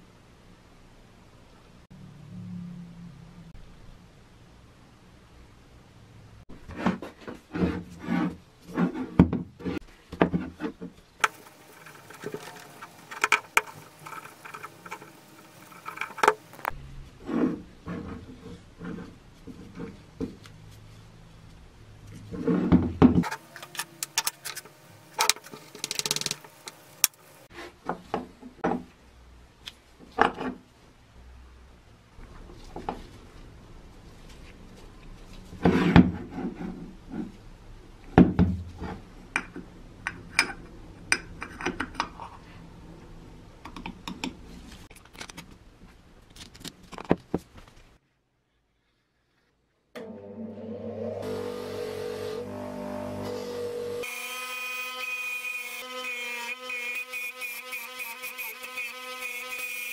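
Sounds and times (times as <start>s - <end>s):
metal parts knocking on wood: 11.2s - 16.6s, 23.2s - 27.2s
metal rubbing: 11.2s - 19.9s, 23.2s - 27.5s.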